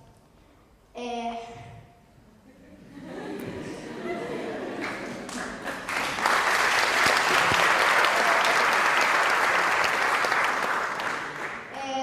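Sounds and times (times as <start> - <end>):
audience applauding: 3.2 - 11.8.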